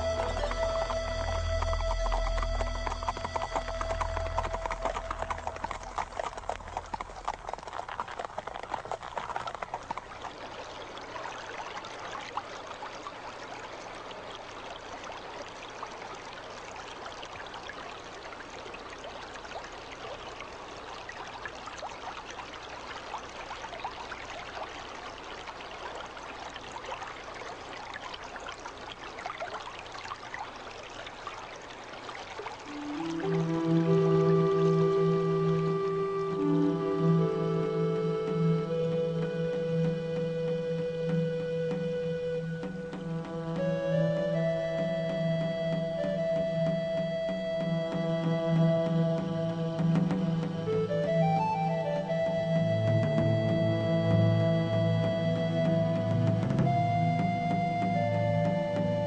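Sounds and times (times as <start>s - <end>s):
horse hooves clip-clopping: 0.0s - 12.5s, 32.6s - 52.2s
water trickling and splashing: 0.0s - 59.0s.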